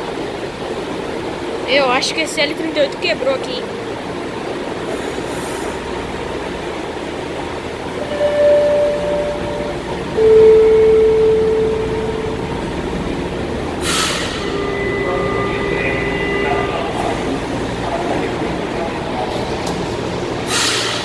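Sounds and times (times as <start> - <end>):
train equipment humming: 0.0 - 21.0
steady tone: 7.9 - 19.0
lower loud steady tone: 8.0 - 18.3.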